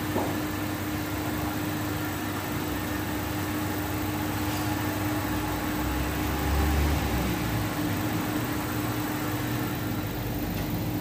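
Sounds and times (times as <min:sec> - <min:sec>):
hydraulic car lift humming: 0:00.0 - 0:11.0.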